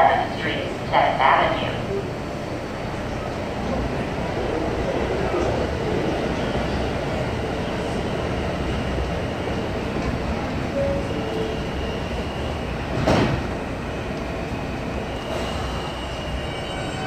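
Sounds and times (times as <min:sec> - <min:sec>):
subway train humming: 0:00.0 - 0:17.0
train doors sliding shut: 0:09.9 - 0:14.4, 0:15.0 - 0:17.0.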